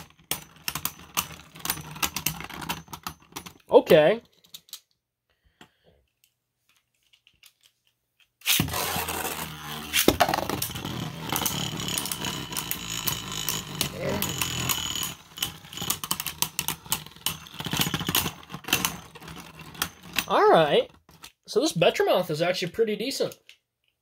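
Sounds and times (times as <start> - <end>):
spinning tops whirring: 8.4 - 20.9.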